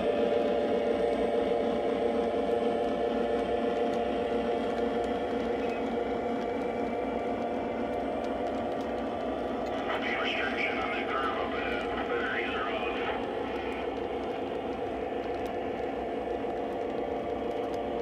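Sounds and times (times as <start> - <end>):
diesel engine sound: 0.0 - 18.0
model train cars rolling on track: 4.6 - 17.0.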